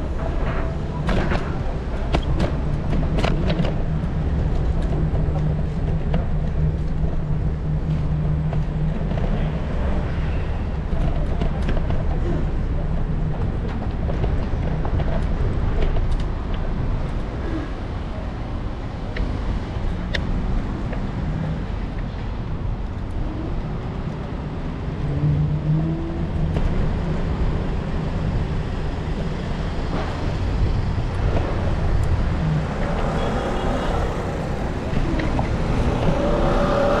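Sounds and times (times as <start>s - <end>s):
wind and road noise: 0.0s - 37.0s
vehicle engine humming: 15.6s - 37.0s.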